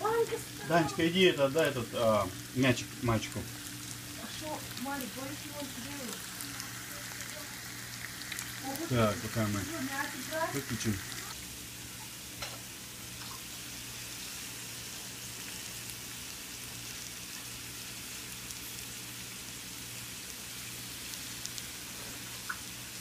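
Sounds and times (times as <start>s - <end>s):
low steady hum: 0.0s - 16.6s
mushrooms sizzling in oil: 0.0s - 23.0s.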